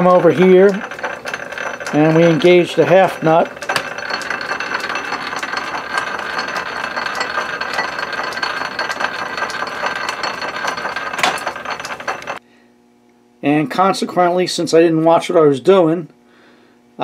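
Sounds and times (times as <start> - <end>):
metal lathe running: 0.0 - 12.4.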